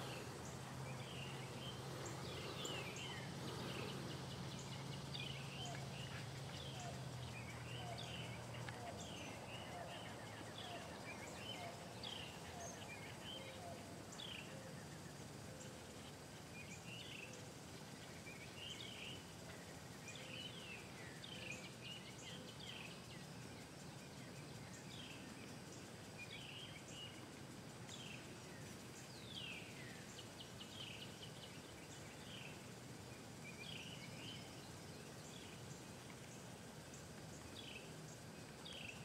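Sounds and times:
bird chirping: 0:00.0 - 0:39.0
steady background noise: 0:00.0 - 0:39.0.

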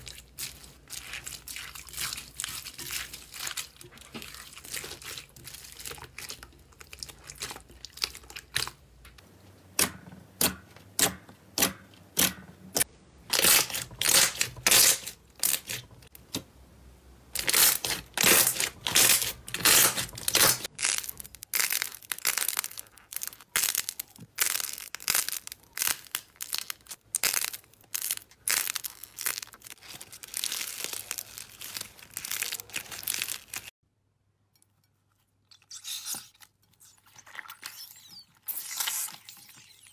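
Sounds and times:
slime squelching and popping: 0:00.0 - 0:08.9, 0:17.4 - 0:33.7.

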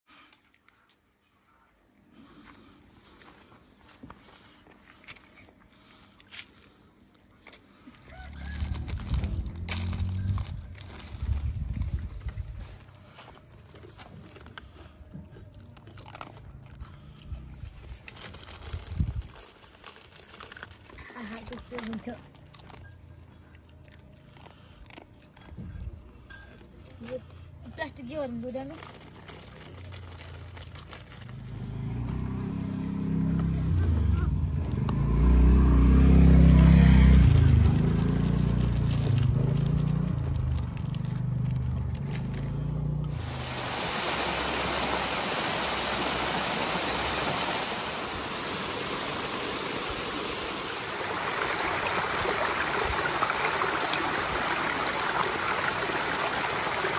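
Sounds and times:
dog crunching food: 0:07.4 - 0:27.1, 0:28.6 - 0:32.2, 0:37.0 - 0:43.2
vehicle engine running: 0:08.2 - 0:13.8, 0:31.2 - 0:56.8.

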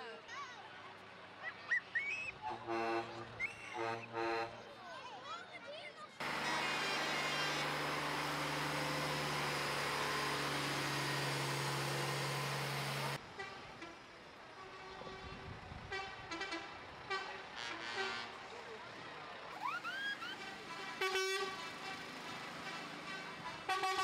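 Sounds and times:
street sound: 0:06.0 - 0:24.0
truck diesel engine humming: 0:06.2 - 0:13.2, 0:19.2 - 0:24.0.

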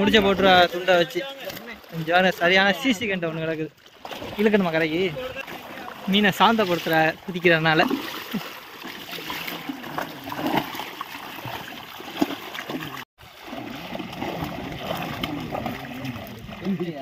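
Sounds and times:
fish thrashing and splashing: 0:03.8 - 0:17.0.

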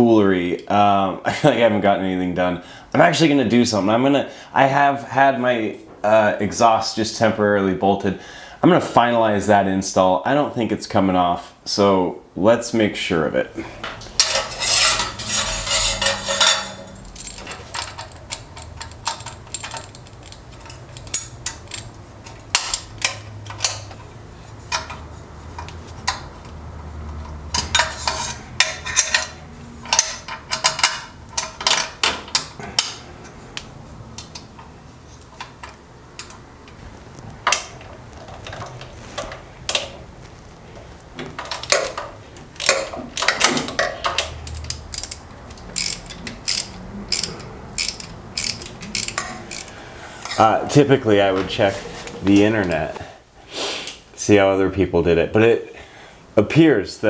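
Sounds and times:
metallic clinks of wrenches: 0:14.2 - 0:24.0, 0:27.5 - 0:33.0, 0:42.6 - 0:50.5.

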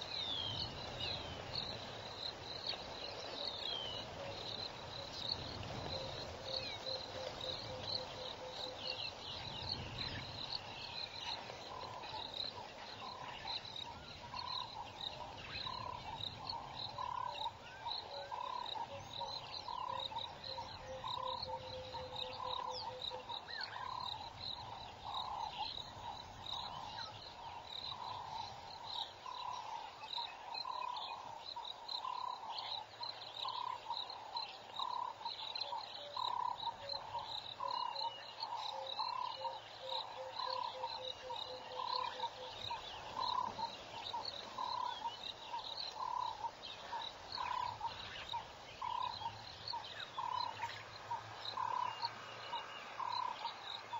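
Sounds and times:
frog calling: 0:11.3 - 0:53.9.

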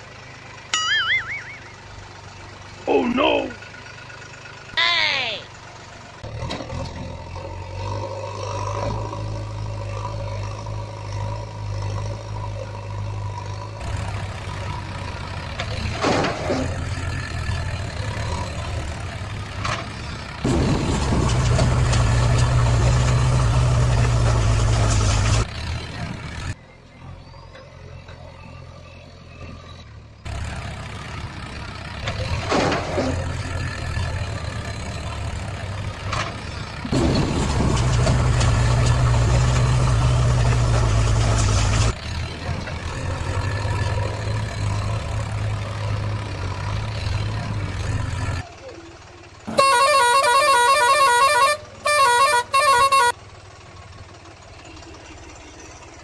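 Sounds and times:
truck engine drone: 0:00.0 - 0:56.0.

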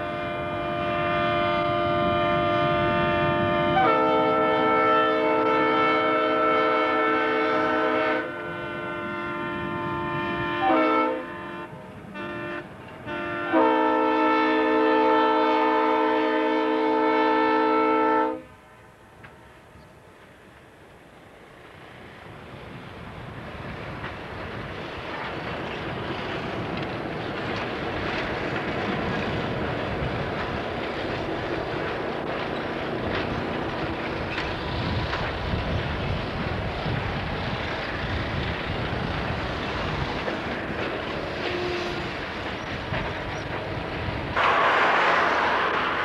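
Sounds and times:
train wheels on rails: 0:00.0 - 0:46.0
diesel locomotive engine running: 0:18.6 - 0:46.0.

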